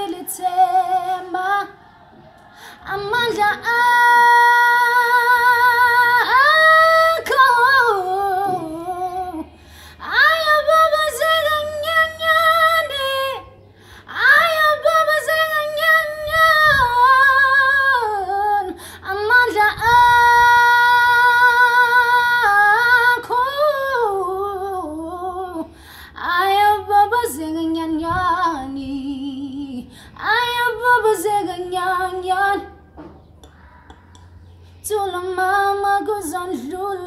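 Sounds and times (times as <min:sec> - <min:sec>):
woman singing without words: 0:00.0 - 0:01.9, 0:02.6 - 0:32.8, 0:34.8 - 0:37.0
singer's short breaths: 0:02.1 - 0:02.9, 0:09.5 - 0:10.0, 0:13.7 - 0:14.1, 0:25.7 - 0:26.2.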